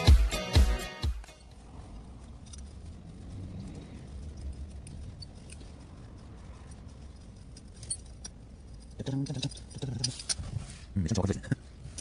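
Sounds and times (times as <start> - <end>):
metallic clicks and scrapes: 1.2 - 12.0
low rumble: 1.4 - 8.9.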